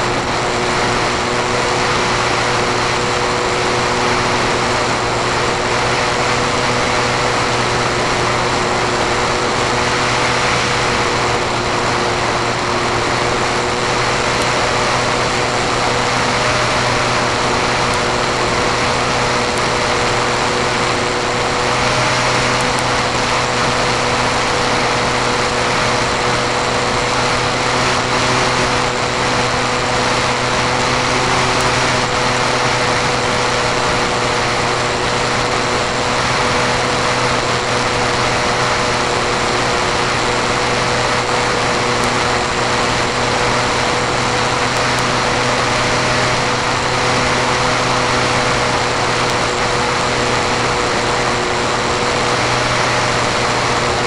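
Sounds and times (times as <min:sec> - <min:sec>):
small aircraft engine running: 0:00.0 - 0:54.0
wind rushing over microphone: 0:00.0 - 0:54.0.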